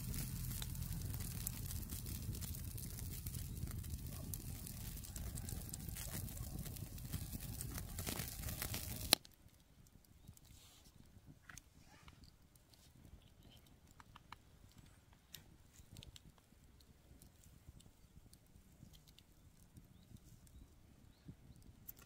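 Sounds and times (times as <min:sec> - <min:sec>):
low rumble: 0:00.0 - 0:09.1
small crackles: 0:00.0 - 0:22.0
faint ticks: 0:11.5 - 0:20.7.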